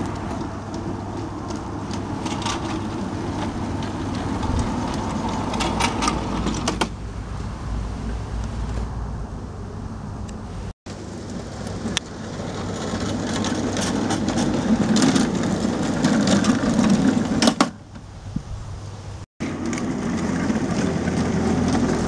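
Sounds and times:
miniature train running on track: 0:00.0 - 0:06.8, 0:10.9 - 0:17.6, 0:19.4 - 0:22.0.

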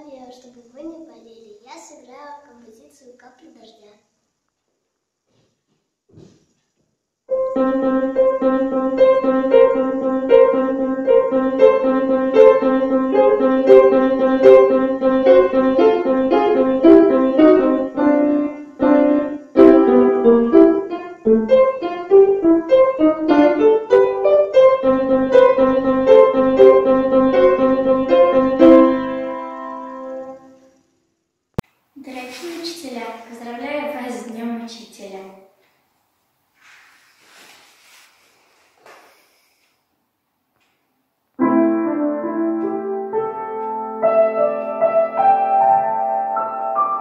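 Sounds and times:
solo upright piano: 0:07.3 - 0:30.8, 0:41.4 - 0:47.0.

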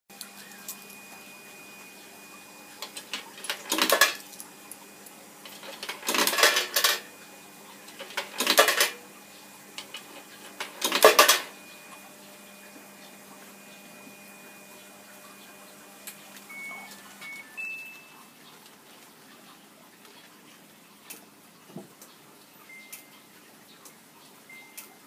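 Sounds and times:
coins clinking into coin box: 0:03.0 - 0:04.4, 0:05.5 - 0:07.1, 0:08.0 - 0:09.0, 0:10.6 - 0:11.5.

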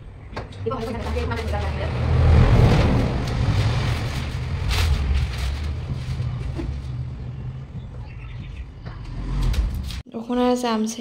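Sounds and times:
steady low rumble: 0:00.0 - 0:10.0
newspaper rustling and crackling: 0:02.7 - 0:07.8.

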